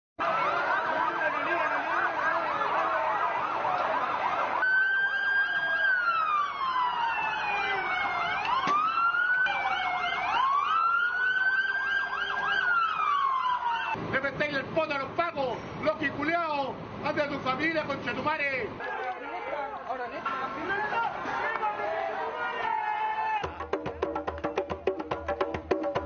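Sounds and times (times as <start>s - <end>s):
police siren wailing: 0.2s - 14.1s
police sirens yelping: 0.2s - 15.8s.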